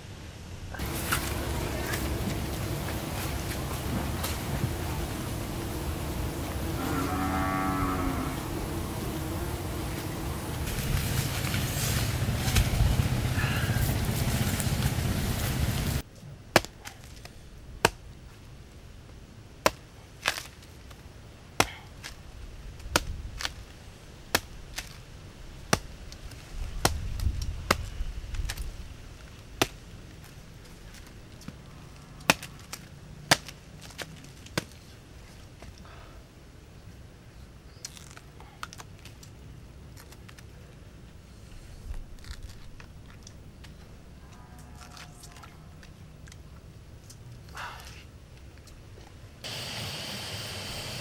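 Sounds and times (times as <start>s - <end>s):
steady rushing noise: 0.0s - 6.9s, 8.2s - 16.1s.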